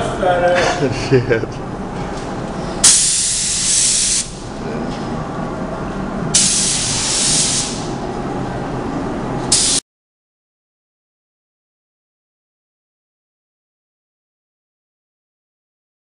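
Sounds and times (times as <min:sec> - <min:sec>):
paint spray gun spraying: 0:02.8 - 0:04.4, 0:06.4 - 0:07.8, 0:09.5 - 0:09.8.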